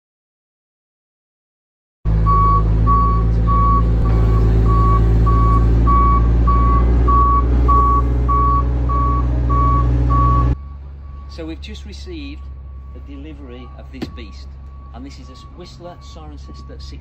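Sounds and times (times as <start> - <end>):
low engine hum: 2.1 - 17.0
reversing alarm beeping: 2.2 - 17.0.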